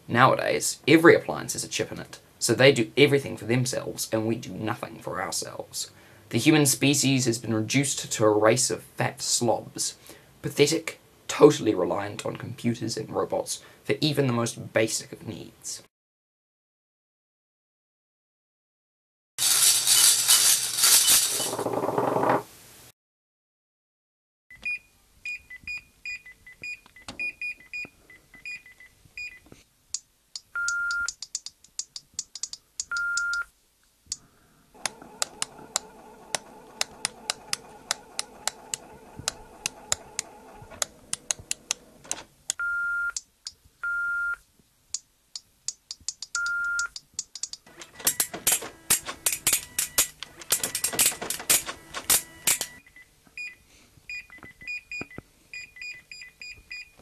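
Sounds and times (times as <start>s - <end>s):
fast electronic clicking: 30.4s - 33.4s, 34.8s - 42.2s, 45.4s - 52.8s.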